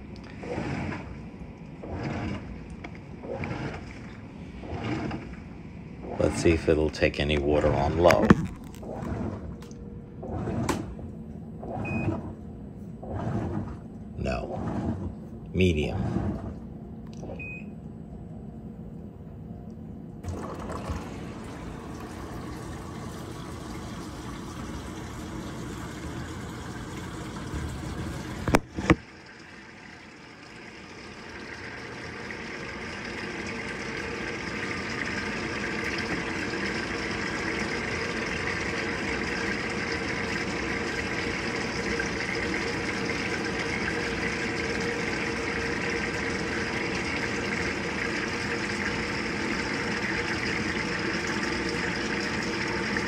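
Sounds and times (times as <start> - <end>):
washing machine clicks: 7.2 - 12.4
water pouring into tub: 20.2 - 53.0.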